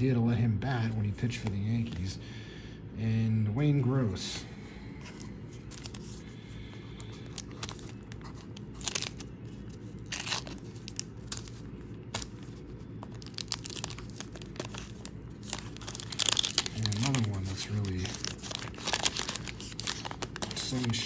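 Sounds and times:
wax paper wrapper crinkling: 5.1s - 21.0s
wrapper tearing crackles: 7.1s - 21.0s.

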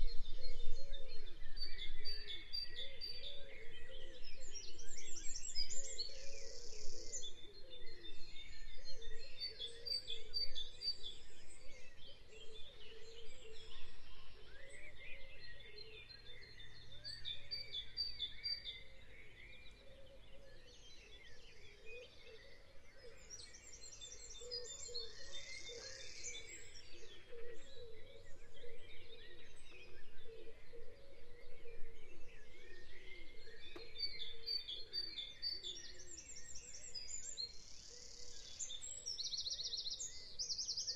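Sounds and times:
birds chirping and calling: 8.8s - 40.9s.

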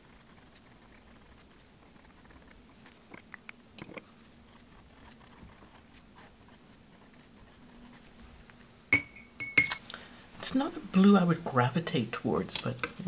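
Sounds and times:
pen nib scratching on paper: 0.0s - 8.6s.

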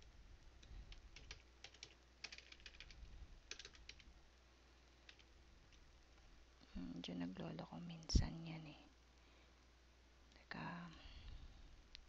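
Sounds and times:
keyboard typing: 0.6s - 4.1s, 5.0s - 5.3s.

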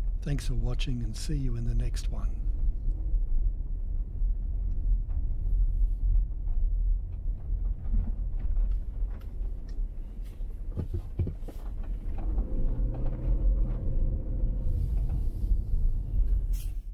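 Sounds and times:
car engine and tyre rumble: 0.0s - 16.9s
pitched hum: 8.3s - 16.9s.

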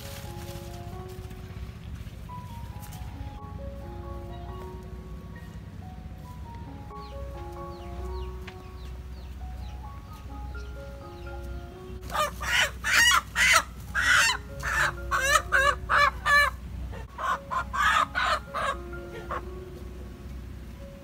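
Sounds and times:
soft background music: 0.0s - 21.0s
hen squawking in distress: 12.1s - 16.6s, 17.2s - 19.4s.

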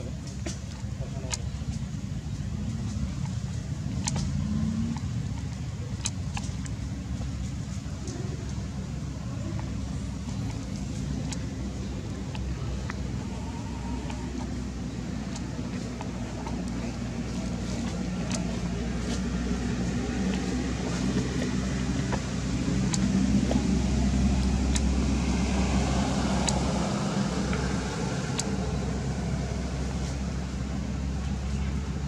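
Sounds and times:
engine humming: 0.0s - 32.0s
faint clicks: 0.2s - 25.0s.

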